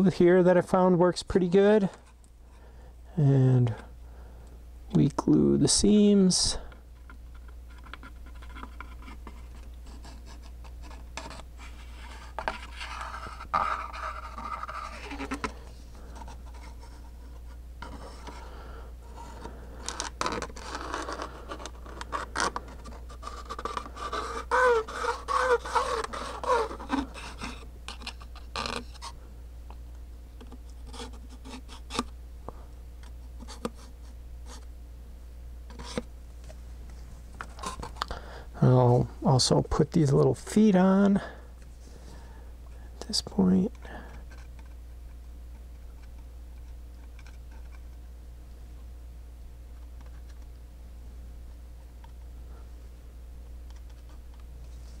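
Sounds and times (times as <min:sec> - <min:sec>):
scratching and rubbing on wood: 0:07.0 - 0:29.2, 0:30.5 - 0:32.1, 0:37.3 - 0:38.0.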